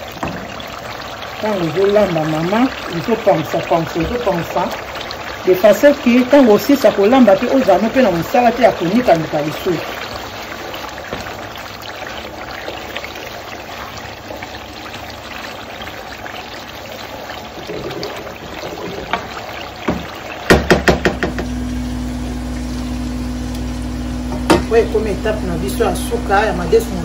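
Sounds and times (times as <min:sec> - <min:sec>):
sauce sizzling in a pan: 0:00.0 - 0:27.0
sharp knocks: 0:19.9 - 0:21.5.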